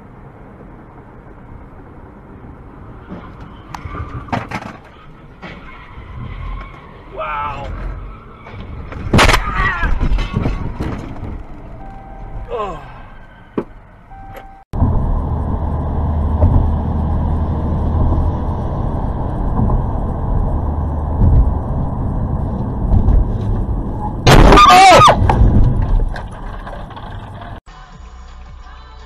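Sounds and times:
car road and engine noise: 0.0 - 29.0
loud burst with shrill tone: 24.2 - 25.2.

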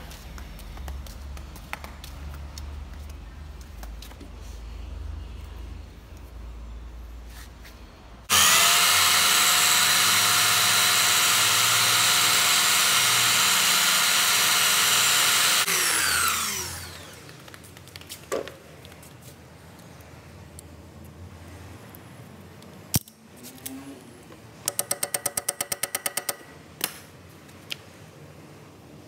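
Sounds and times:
belt sander whining: 8.3 - 17.3.

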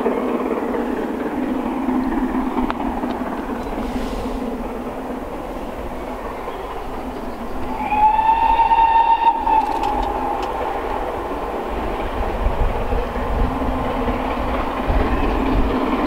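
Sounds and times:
steam locomotive rumble: 0.0 - 16.0
steam locomotive whistle: 7.7 - 11.1.

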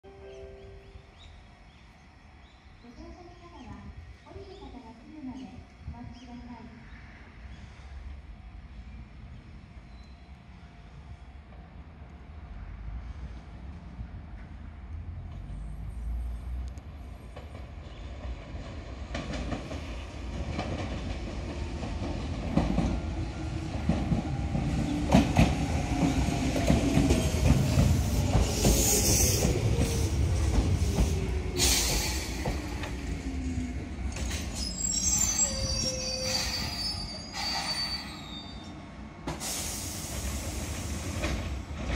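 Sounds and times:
train wheels clicking over rail joints: 23.8 - 33.0
high brake squeal: 34.5 - 38.8.

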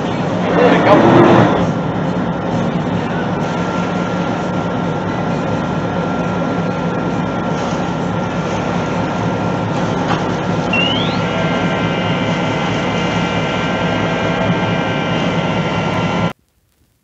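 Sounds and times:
boat engines droning: 0.0 - 16.3
short rising chirp: 10.7 - 11.4.

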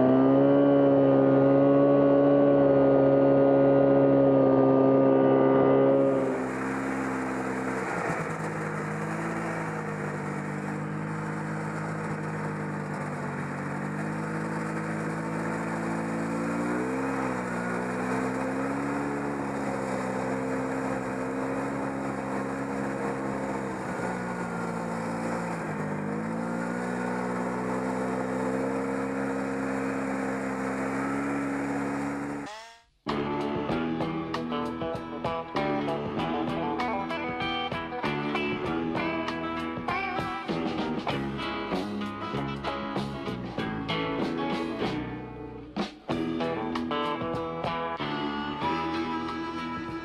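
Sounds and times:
track and wind noise: 0.0 - 32.5
snowmobile engine running: 0.0 - 45.0, 46.1 - 50.0.

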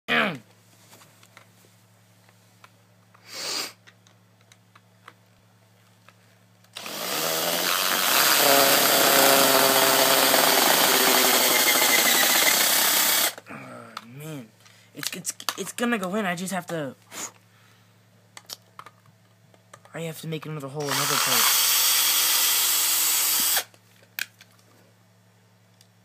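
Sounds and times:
power tool whining: 6.8 - 13.4, 20.8 - 23.7.

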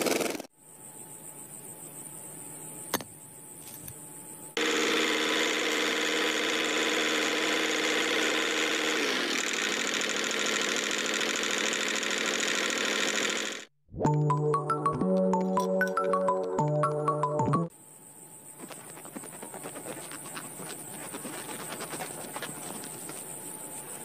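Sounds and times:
small electric motor whining: 4.6 - 13.7.

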